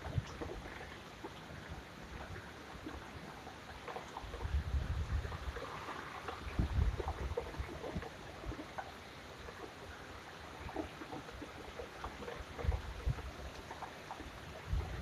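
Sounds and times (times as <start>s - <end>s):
steady rain: 0.0s - 15.0s
wind gusts buffeting: 4.3s - 8.1s, 14.6s - 15.0s.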